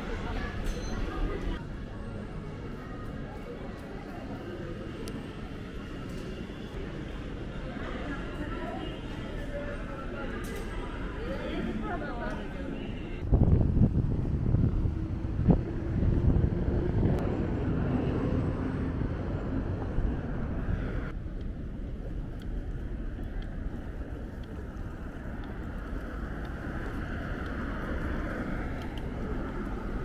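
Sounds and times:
low traffic rumble: 0.0 - 30.0
wind on microphone: 13.2 - 30.0.

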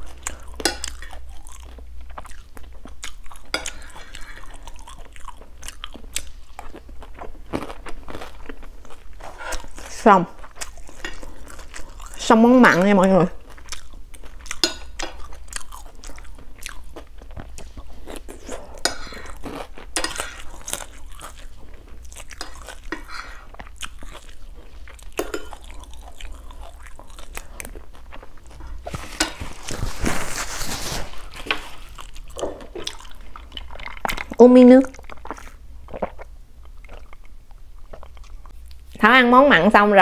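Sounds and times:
chewing and mouth sounds: 0.0 - 12.3, 13.3 - 39.0
paper napkin rustling: 28.9 - 31.5.

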